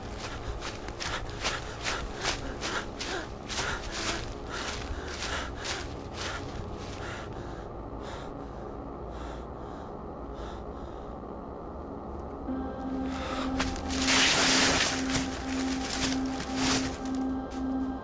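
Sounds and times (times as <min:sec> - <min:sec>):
man panting: 0:00.2 - 0:11.2.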